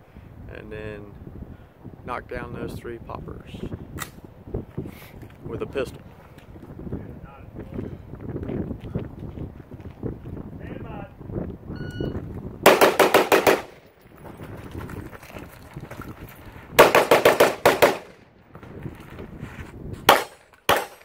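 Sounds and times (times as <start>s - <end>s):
shot timer beep: 11.8s - 12.2s
rapid rifle shots: 12.6s - 13.9s, 16.8s - 18.2s, 20.1s - 21.0s
pistol shots hitting steel: 12.7s - 13.9s, 20.1s - 21.0s.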